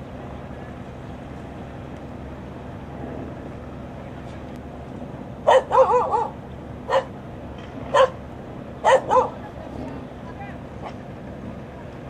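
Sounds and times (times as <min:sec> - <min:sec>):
steady low hum: 0:00.0 - 0:12.0
dog barking: 0:05.5 - 0:07.1, 0:07.9 - 0:08.2, 0:08.8 - 0:09.4.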